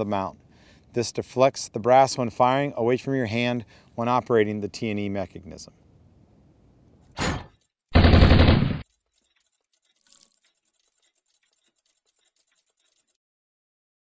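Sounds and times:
machine-gun fire: 7.9 - 8.8
faint scattered ticks: 8.9 - 13.2.

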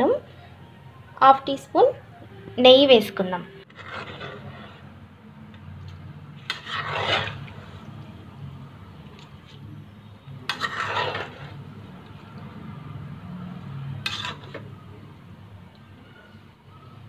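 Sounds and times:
spoon scraping cooking pot: 3.6 - 8.0, 9.1 - 12.2, 13.8 - 14.8.

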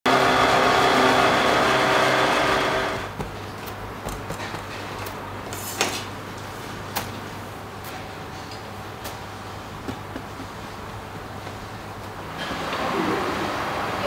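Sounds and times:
noodle cutting machine running: 0.1 - 3.1.

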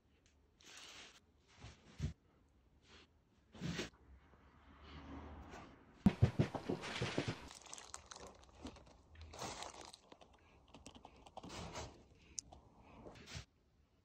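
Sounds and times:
plastic piping bag crinkling: 7.1 - 12.4.

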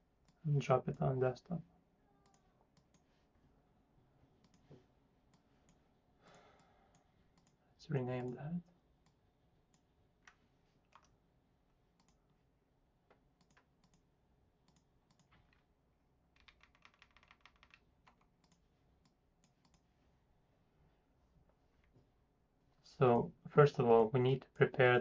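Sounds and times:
mouse clicks: 4.4 - 4.7, 6.9 - 7.6, 12.0 - 12.2, 13.4 - 14.0, 14.6 - 15.3, 16.4 - 19.8
computer keyboard typing: 10.2 - 11.1, 14.7 - 15.6, 16.4 - 18.6.

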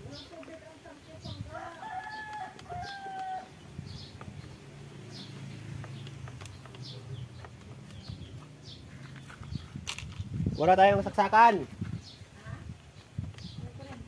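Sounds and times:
rooster crowing: 1.5 - 3.6.

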